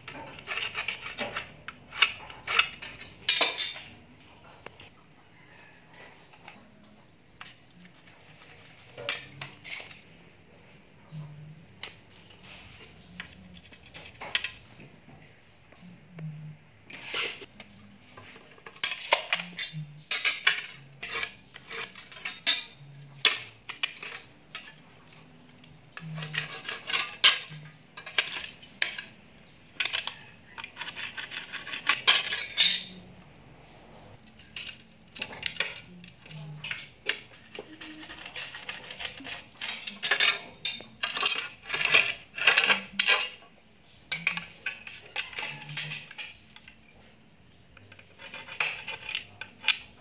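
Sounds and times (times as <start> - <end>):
metal tools clinking on tiles: 0.0 - 4.0, 7.4 - 10.0, 18.5 - 33.0, 34.2 - 43.5, 44.1 - 47.0.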